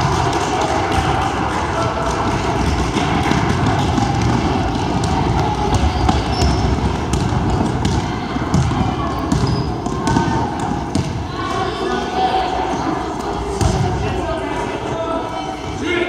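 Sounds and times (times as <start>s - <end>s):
players running: 0.0s - 11.4s
voices in background: 0.0s - 16.0s
basketball dribbling on hardwood: 2.7s - 11.1s.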